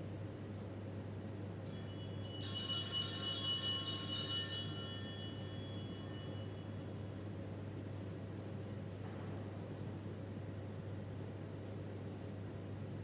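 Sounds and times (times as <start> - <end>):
high metallic jingling: 1.7 - 6.8.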